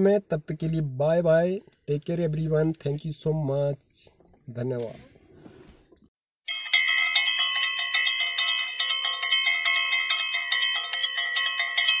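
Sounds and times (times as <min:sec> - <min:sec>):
bright metallic bell ringing: 0:06.5 - 0:12.0.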